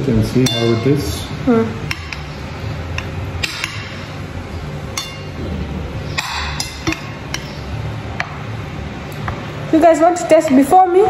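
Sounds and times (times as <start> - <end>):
low steady hum: 0.0 - 11.0
metal fork clinking on plate: 0.4 - 1.0.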